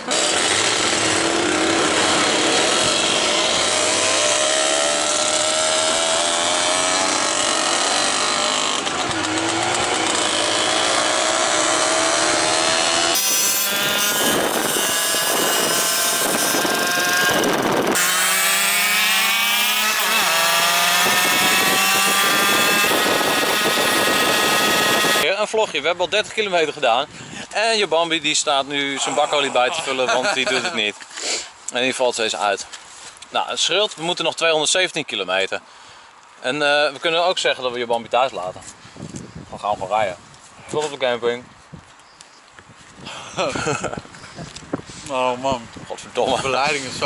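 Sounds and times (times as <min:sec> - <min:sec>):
moped engines running: 0:00.0 - 0:25.3.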